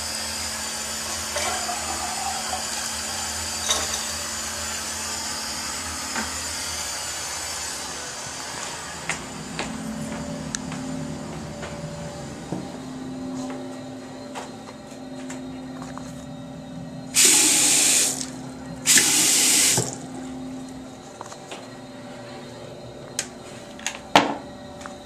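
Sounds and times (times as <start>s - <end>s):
steady low hum: 0.0s - 25.0s
water rushing into sink basin: 17.2s - 18.3s, 18.9s - 20.0s.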